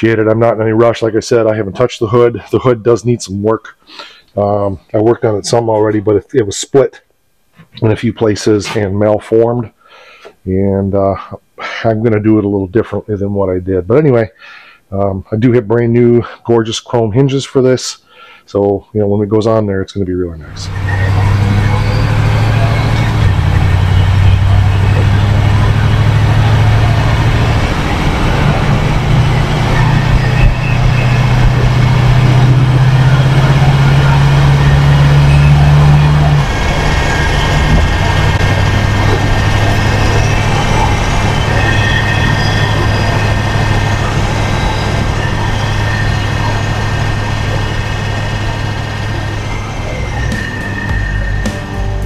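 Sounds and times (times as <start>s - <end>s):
transmission gear whine: 20.4s - 52.0s
car engine from inside cabin: 20.6s - 41.8s, 42.5s - 51.4s.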